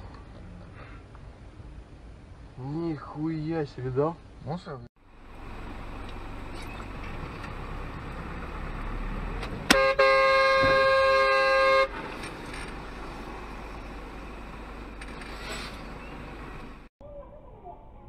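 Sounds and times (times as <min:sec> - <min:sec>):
road and engine rumble: 0:00.0 - 0:18.0
vehicle horn blast: 0:09.7 - 0:12.0.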